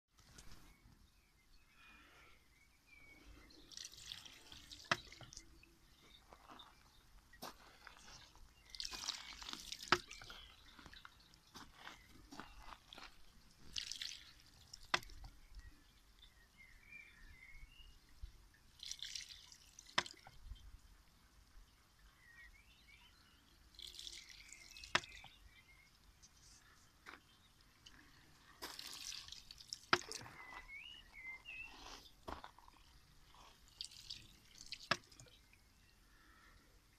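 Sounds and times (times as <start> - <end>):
water trickling: 3.1 - 36.9
water splashing: 3.6 - 6.0, 7.4 - 15.8, 18.5 - 20.8, 23.7 - 35.6.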